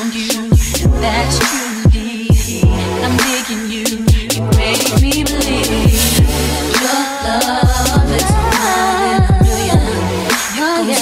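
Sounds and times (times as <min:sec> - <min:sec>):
instrumental beat: 0:00.0 - 0:11.0
deep bass drum hits: 0:02.3 - 0:02.9, 0:04.0 - 0:06.5.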